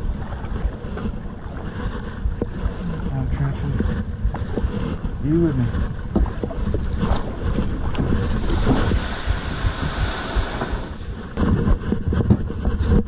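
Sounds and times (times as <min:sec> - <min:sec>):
kayak rustling through dry grass: 0:00.0 - 0:13.0
paddle strokes in water: 0:00.0 - 0:13.0
water sloshing against hull: 0:00.0 - 0:13.0
wind buffeting microphone: 0:00.0 - 0:13.0.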